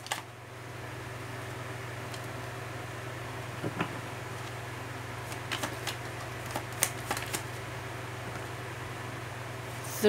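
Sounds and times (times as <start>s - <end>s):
cards snapping and flicking: 0.0s - 0.3s, 5.2s - 7.6s
steady low hum: 0.0s - 10.0s.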